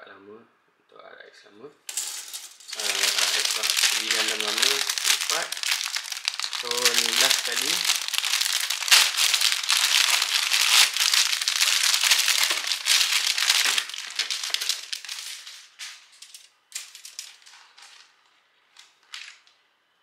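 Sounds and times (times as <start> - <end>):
plastic bag crinkling: 2.4 - 18.2.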